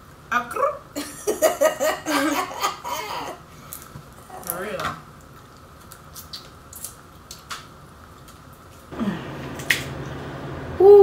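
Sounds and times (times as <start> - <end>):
person humming mmm: 8.9 - 9.4.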